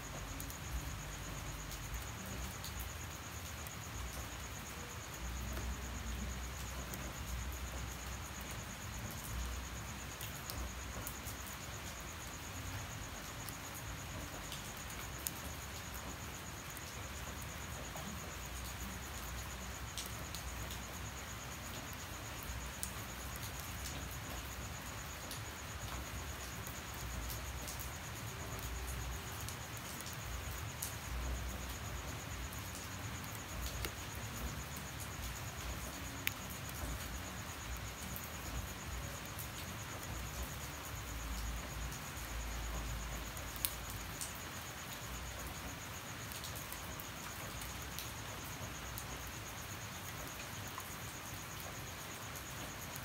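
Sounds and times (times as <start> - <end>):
high-pitched insect trill: 0.0 - 53.0
light rain falling: 0.0 - 53.0
water drips ticking: 21.8 - 51.8.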